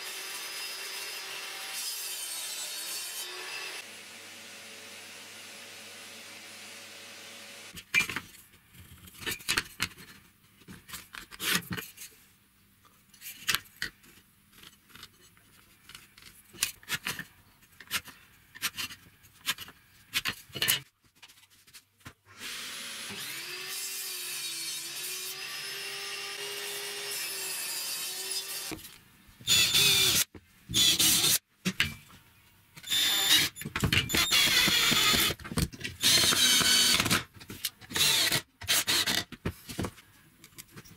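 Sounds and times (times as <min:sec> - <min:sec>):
drill driving screws into plywood: 0:29.5 - 0:31.4, 0:32.8 - 0:35.4, 0:36.0 - 0:37.3, 0:37.9 - 0:39.3.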